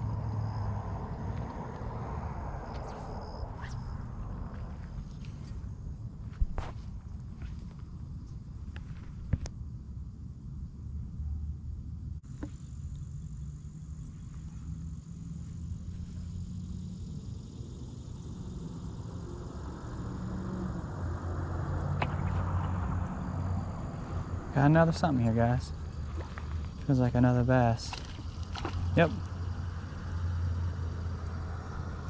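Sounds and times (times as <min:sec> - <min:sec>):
insect trill: 0:00.0 - 0:32.0
traffic rumble: 0:00.0 - 0:32.0
wind: 0:00.0 - 0:32.0.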